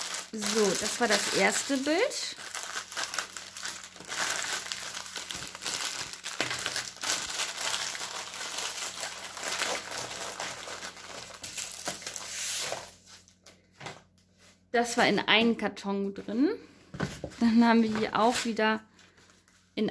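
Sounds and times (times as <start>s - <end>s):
plastic film crinkling: 0.0s - 13.6s.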